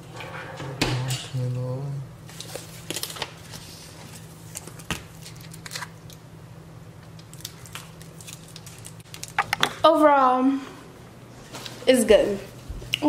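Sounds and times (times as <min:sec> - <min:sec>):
steady low hum: 0:00.0 - 0:13.0
clicks and crackles of eating: 0:07.0 - 0:09.8.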